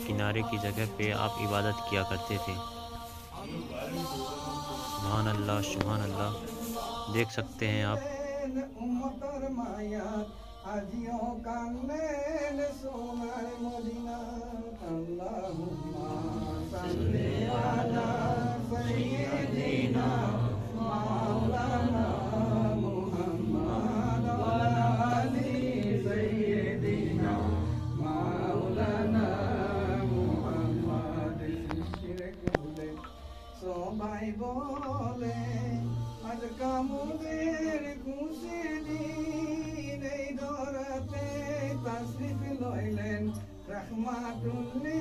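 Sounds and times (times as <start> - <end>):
voices chanting: 0.0 - 8.0, 15.5 - 33.6.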